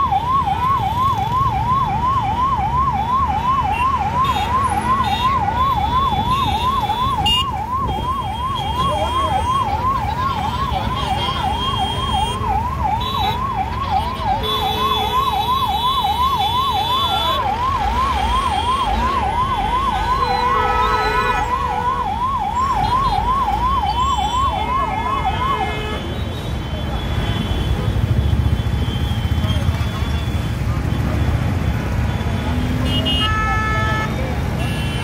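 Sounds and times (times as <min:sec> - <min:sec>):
siren yelping: 0:00.0 - 0:26.0
road traffic rumble: 0:00.0 - 0:35.0.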